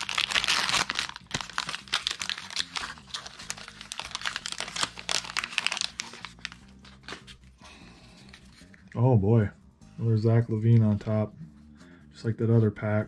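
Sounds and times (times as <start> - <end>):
plastic wrapper crinkling: 0.0 - 7.4
wrapper tearing: 0.0 - 7.4.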